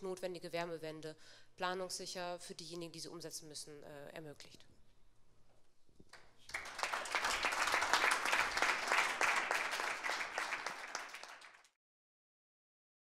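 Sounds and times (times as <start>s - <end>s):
audience applauding: 6.4s - 11.8s.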